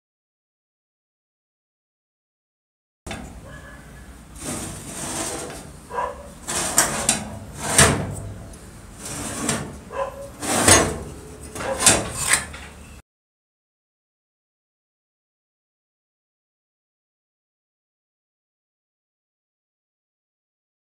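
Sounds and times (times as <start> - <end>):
metal saw clunking and scraping on floor: 4.4 - 5.8, 6.4 - 12.8.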